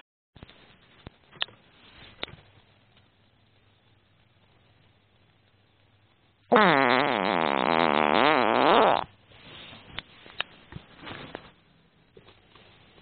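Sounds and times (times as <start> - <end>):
rustling: 0.4 - 2.7, 9.2 - 13.0
long loud fart: 6.5 - 9.2.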